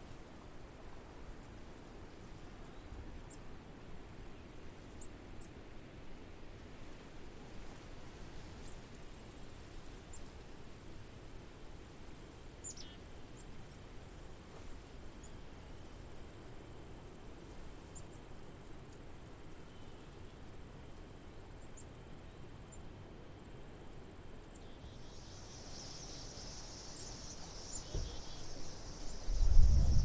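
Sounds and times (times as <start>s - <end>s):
insect chorus chirring: 0.0s - 5.5s, 8.6s - 17.0s, 23.7s - 30.0s.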